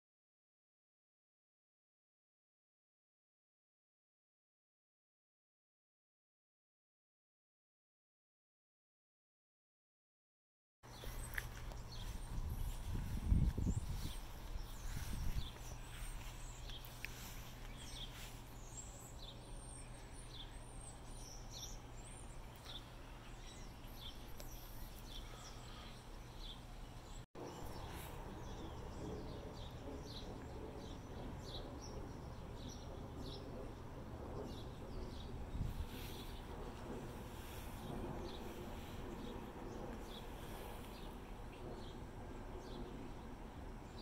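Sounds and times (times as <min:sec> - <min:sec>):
low rumble: 0:10.9 - 0:43.9
birds chirping: 0:10.9 - 0:44.0
steady low hum: 0:10.9 - 0:44.0.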